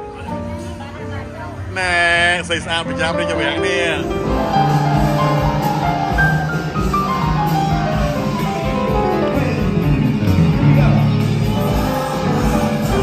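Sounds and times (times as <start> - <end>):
loud party music with steady beat: 3.6 - 13.0.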